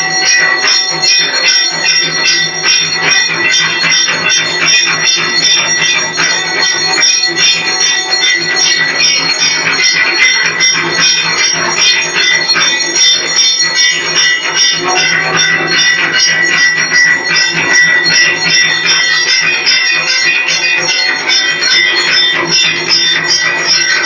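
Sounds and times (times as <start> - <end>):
temple bells ringing: 0.0 - 24.0.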